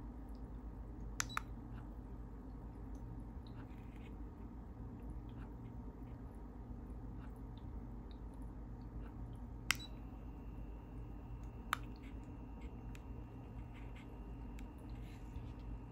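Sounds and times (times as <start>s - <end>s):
diffuser low steady hum: 0.0s - 15.9s
faint high whine: 9.6s - 15.9s.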